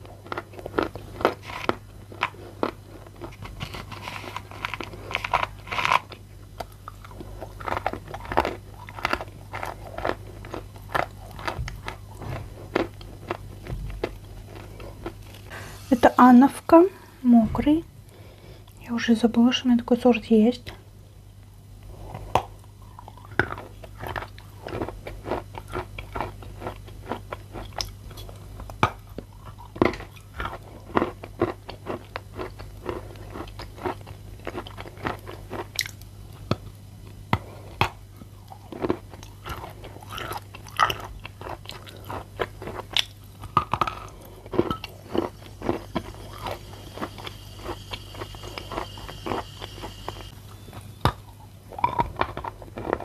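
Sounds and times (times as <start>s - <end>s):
faint low hum: 0.0s - 53.0s
teeth crunching chalk: 0.2s - 15.2s.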